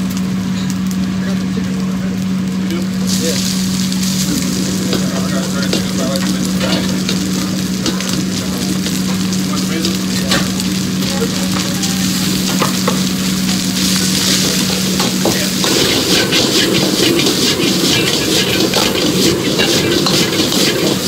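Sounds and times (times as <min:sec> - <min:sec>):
rice sizzling in a wok: 0:00.0 - 0:21.0
steady low hum: 0:02.1 - 0:21.0
metal ladle scraping a wok: 0:04.0 - 0:09.3, 0:11.6 - 0:21.0.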